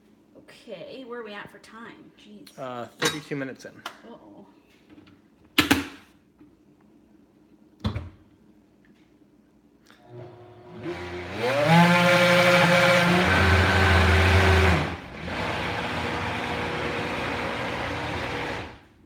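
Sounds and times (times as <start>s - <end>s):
blender motor whirring: 10.0s - 18.9s.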